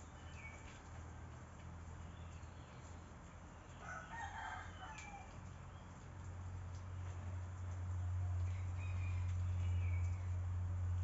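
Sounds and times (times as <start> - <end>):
rooster crowing: 3.8 - 5.4, 8.5 - 9.8.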